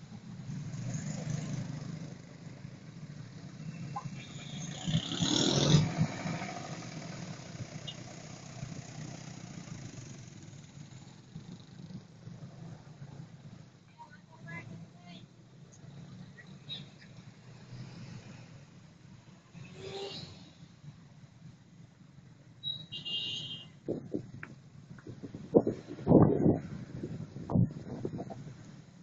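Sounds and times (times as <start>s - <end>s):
traffic engines humming: 0.0s - 29.0s
motorcycle passing close: 0.4s - 2.6s, 3.2s - 12.1s.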